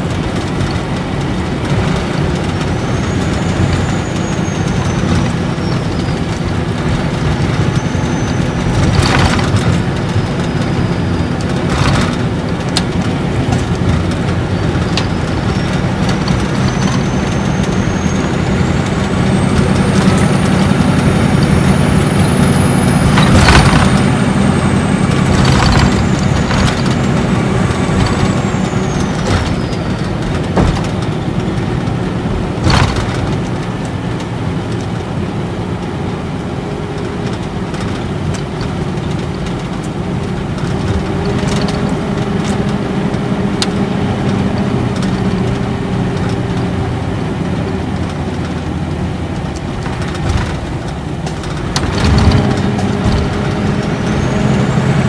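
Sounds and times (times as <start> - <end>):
low diesel engine drone: 0.0 - 55.0
turbocharger whistle: 14.6 - 30.2.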